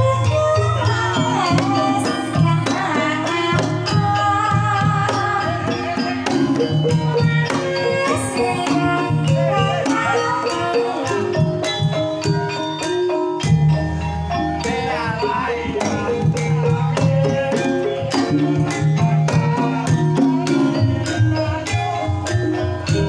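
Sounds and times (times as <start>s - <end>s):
woman singing: 0.0s - 11.7s, 14.6s - 23.0s
gamelan ensemble playing: 0.0s - 23.0s
hand drum: 0.0s - 23.0s.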